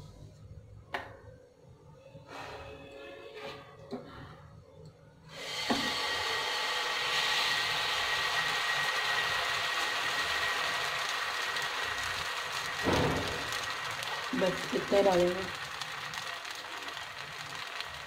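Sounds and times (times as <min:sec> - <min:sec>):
batter sizzling on a hot pan: 0:05.7 - 0:18.0.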